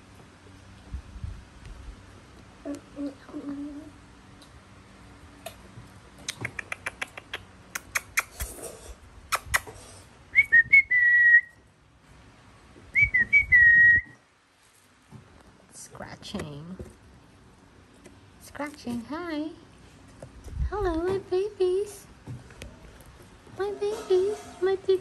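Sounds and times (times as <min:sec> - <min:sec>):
short high whistles: 0:10.4 - 0:11.6.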